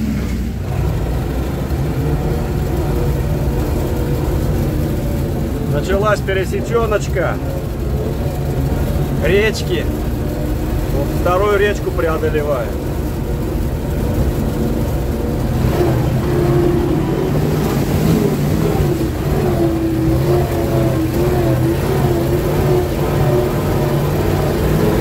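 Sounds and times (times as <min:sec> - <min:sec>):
truck engine running under load: 0:00.0 - 0:25.0.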